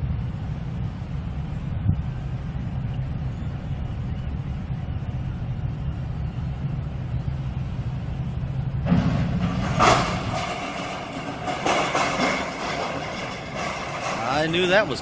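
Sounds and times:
ship deep rumble: 0.0s - 15.0s
loud rough noise: 8.8s - 15.0s.

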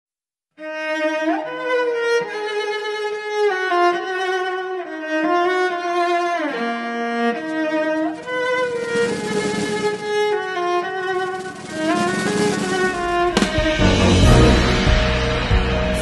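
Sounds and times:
slow instrumental melody: 13.1s - 16.0s.

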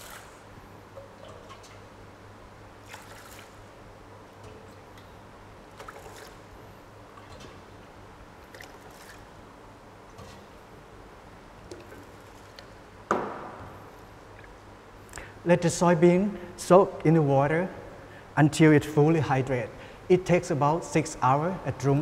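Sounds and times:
low steady hum: 0.0s - 22.0s
water pouring into a bowl: 2.8s - 3.6s.

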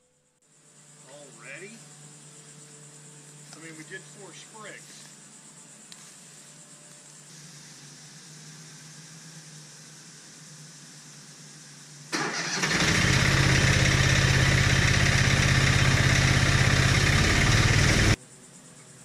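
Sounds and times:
wood chipper engine running: 12.2s - 18.2s.

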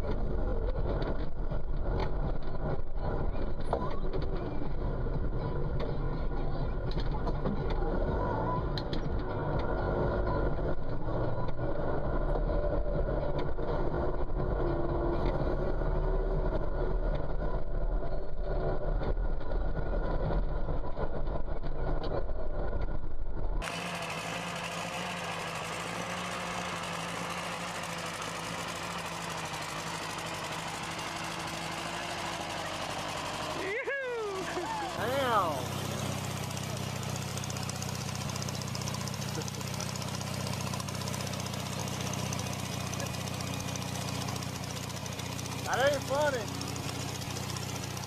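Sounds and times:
tractor engine deep drone: 0.0s - 48.0s
small tractor engine with hiss: 23.6s - 48.0s.

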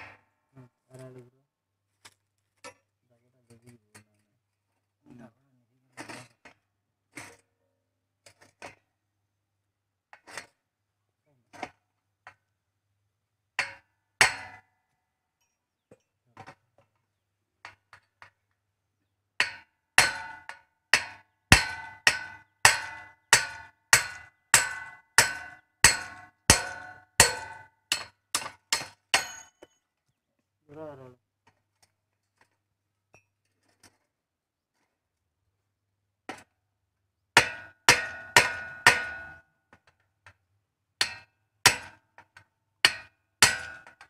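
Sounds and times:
hammer blows ringing on metal: 19.4s - 29.6s
hammer tapping metal: 19.4s - 29.8s.

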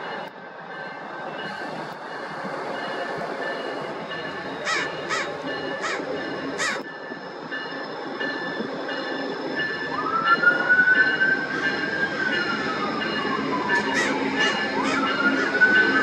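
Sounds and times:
train wheels and brakes squealing: 0.0s - 16.0s
crow cawing: 4.6s - 6.8s, 13.7s - 15.6s.

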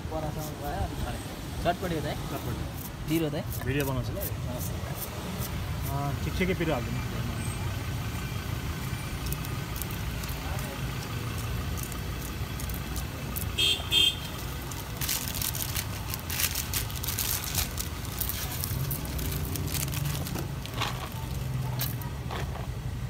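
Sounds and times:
street traffic rumble: 0.0s - 23.0s
vehicle horn tooting: 13.6s - 14.4s
clicks and rustles of food handling: 14.6s - 22.7s.

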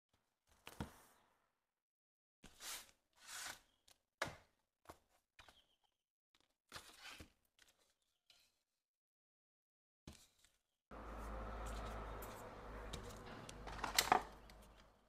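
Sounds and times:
handling rustles scrapes and taps: 11.6s - 14.8s.

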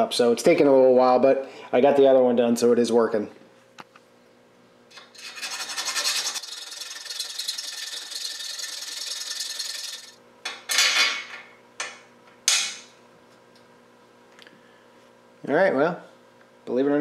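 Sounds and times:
file rasping metal: 5.0s - 10.2s.

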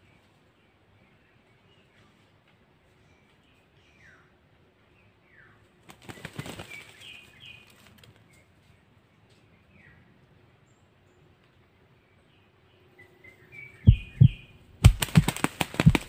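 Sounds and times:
bird wings flapping: 5.8s - 8.3s, 13.9s - 16.0s
high falling bird chirps: 13.1s - 16.0s.

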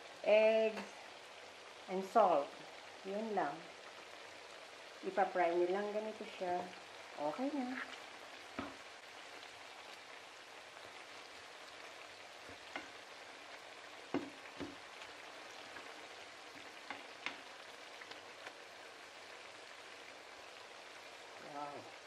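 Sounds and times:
potatoes sizzling in oil: 0.0s - 22.0s.

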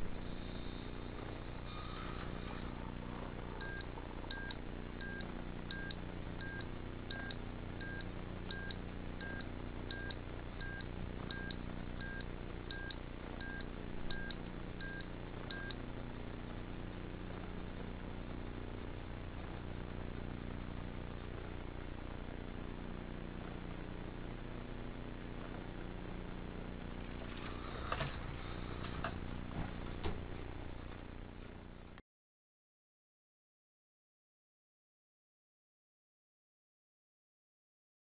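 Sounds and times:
short high-pitched buzzer beeps: 0.0s - 2.8s, 3.6s - 15.8s, 27.4s - 29.0s.

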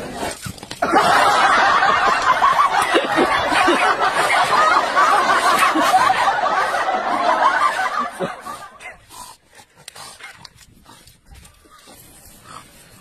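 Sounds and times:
people laughing: 0.8s - 9.1s.

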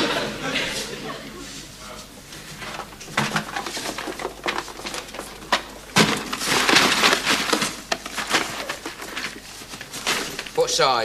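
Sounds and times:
rummaging in cardboard box: 2.6s - 10.8s.

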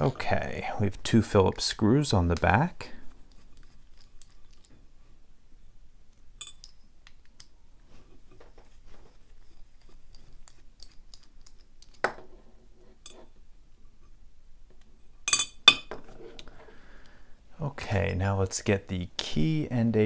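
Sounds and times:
metal clink: 6.4s - 6.8s, 15.3s - 16.0s.

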